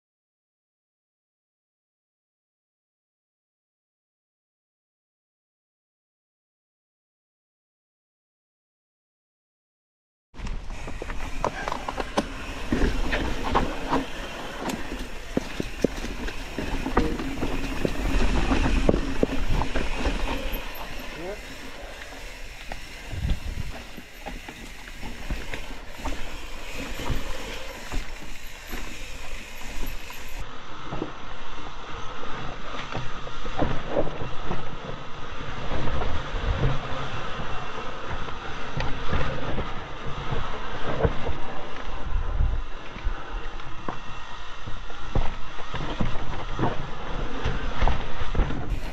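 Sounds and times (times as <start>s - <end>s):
bike rattling and clattering: 10.4s - 30.5s, 45.4s - 48.9s
bike tyres rumbling on dirt: 10.4s - 31.8s, 32.6s - 48.9s.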